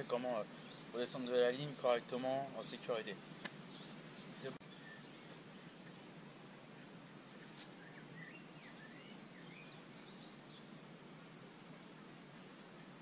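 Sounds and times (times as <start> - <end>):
faint outdoor hiss: 0.0 - 13.0
small bird chirping: 3.2 - 6.2, 6.8 - 10.7.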